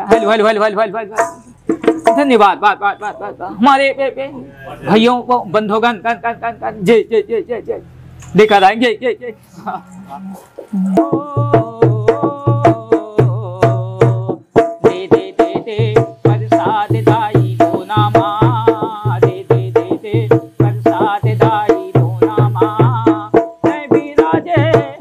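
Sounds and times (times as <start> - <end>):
hand drum rhythm: 1.0 - 2.5, 10.6 - 25.0
man singing folk song: 10.8 - 25.0.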